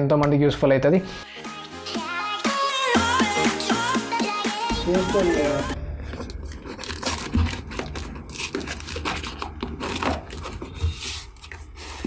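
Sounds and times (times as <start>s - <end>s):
pen scratching cardboard and tape: 6.7s - 12.0s.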